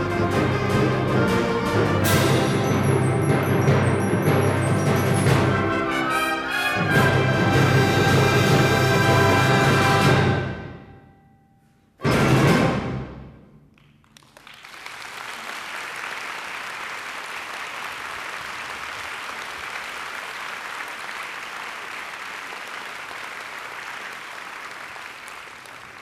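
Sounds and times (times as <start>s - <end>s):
audience applauding: 13.8s - 26.0s.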